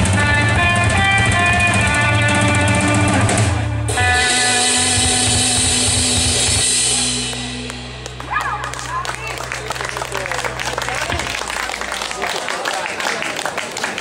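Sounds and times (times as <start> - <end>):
drum kit: 0.0 - 12.1
electric guitar melody: 0.0 - 12.2
bass guitar: 0.0 - 12.4
cymbals ringing: 3.9 - 9.7.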